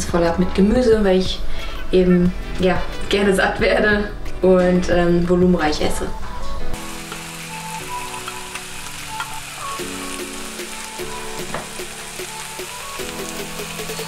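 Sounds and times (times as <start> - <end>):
background music of held notes: 0.0 - 14.0
food sizzling in a frying pan: 6.8 - 14.0.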